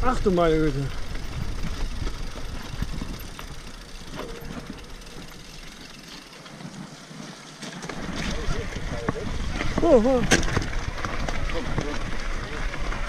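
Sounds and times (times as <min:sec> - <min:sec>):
wind rumble on microphone: 0:00.0 - 0:05.0, 0:07.9 - 0:13.0
bike rattling: 0:00.0 - 0:13.0
bike tyres on dirt: 0:00.0 - 0:13.0.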